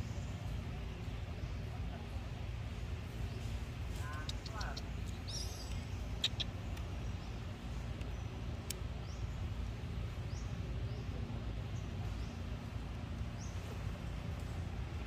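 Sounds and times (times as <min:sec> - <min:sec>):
faint hum: 0:00.0 - 0:15.0
low outdoor rumble: 0:00.0 - 0:15.0.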